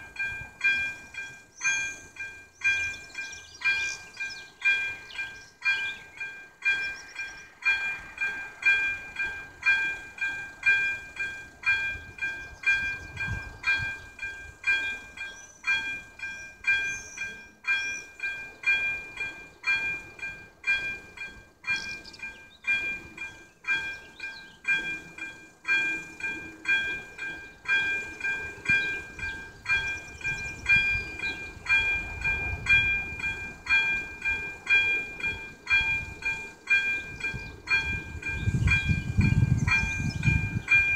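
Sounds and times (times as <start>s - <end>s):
crossing warning bell ringing: 0.0s - 40.9s.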